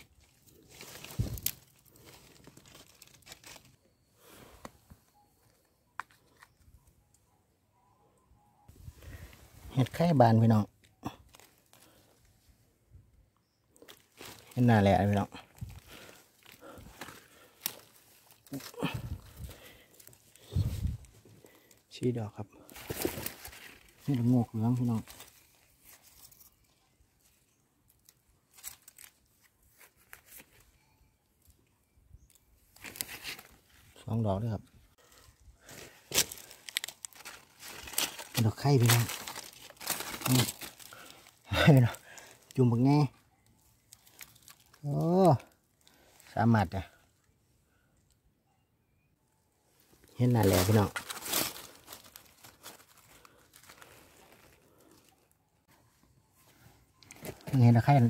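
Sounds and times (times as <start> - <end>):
dry leaves rustling and crunching: 0.0 - 3.8, 11.2 - 12.0, 13.8 - 21.1, 22.6 - 26.6, 28.5 - 30.6, 32.8 - 33.6, 35.6 - 43.1, 43.8 - 46.1, 50.1 - 55.2.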